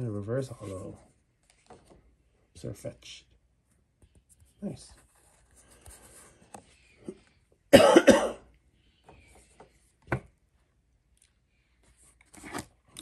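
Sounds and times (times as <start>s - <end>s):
man coughing: 7.7s - 8.5s.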